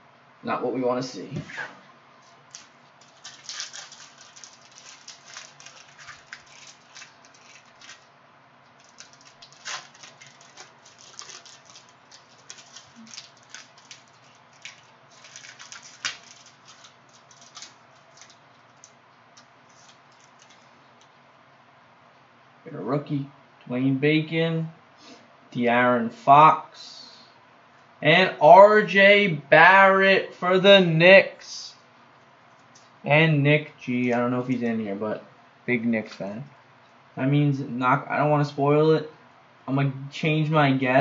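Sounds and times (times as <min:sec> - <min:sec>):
cellophane wrapper crinkling: 0:02.2 - 0:21.1
cards being handled: 0:08.7 - 0:20.7.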